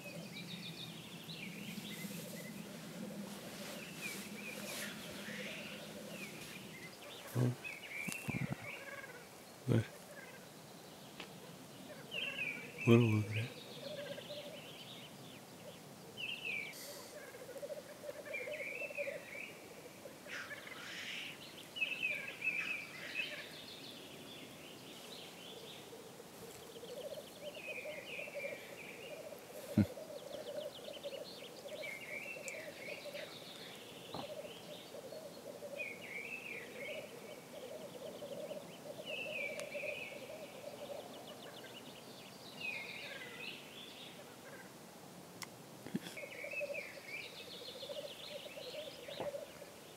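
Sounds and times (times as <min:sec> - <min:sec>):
grouse hissing calls: 0:02.1 - 0:06.5, 0:16.7 - 0:21.4, 0:25.9 - 0:33.3
grouse bubbling coo: 0:08.2 - 0:09.2, 0:26.4 - 0:33.3, 0:34.1 - 0:41.7.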